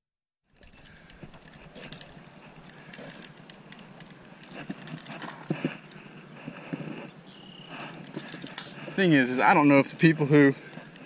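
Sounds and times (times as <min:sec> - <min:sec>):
footsteps on concrete: 0:04.0 - 0:09.0.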